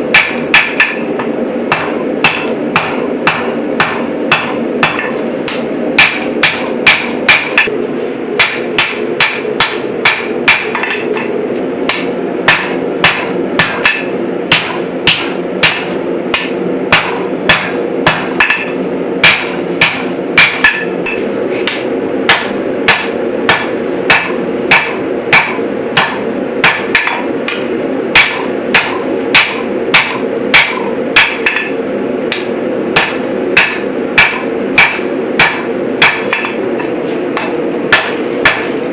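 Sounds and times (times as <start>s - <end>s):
hammer striking hot steel on anvil: 0.0s - 7.8s, 8.4s - 38.9s
steady hum: 0.0s - 38.9s.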